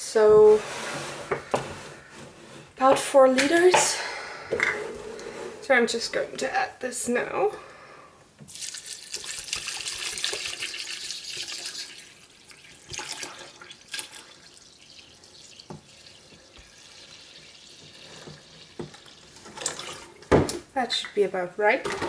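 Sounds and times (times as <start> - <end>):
water pouring into a pot: 8.5 - 20.3.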